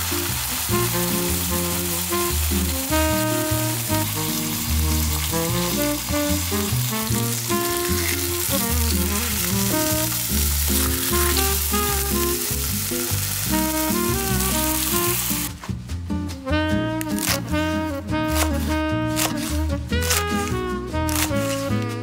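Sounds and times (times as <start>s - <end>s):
steaks sizzling in a pan: 0.0s - 15.5s
background music with bass: 0.0s - 22.0s.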